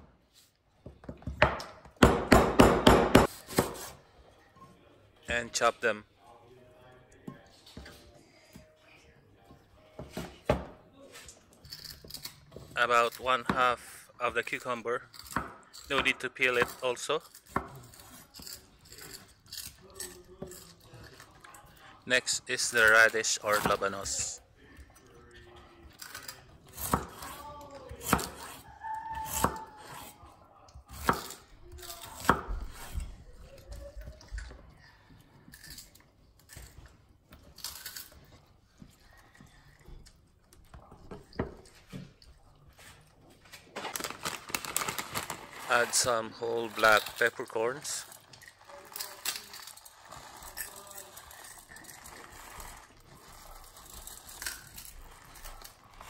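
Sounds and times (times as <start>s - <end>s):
knife chopping on cutting board: 1.3s - 4.0s
plastic bag rustling: 43.5s - 56.0s.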